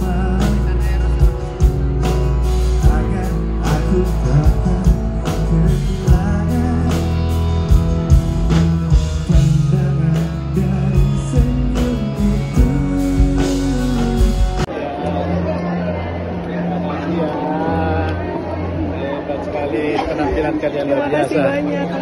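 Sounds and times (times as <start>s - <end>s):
man singing into microphone: 0.0s - 1.4s, 2.8s - 7.4s, 9.0s - 14.7s
bass: 0.0s - 19.3s
guitar: 0.0s - 22.0s.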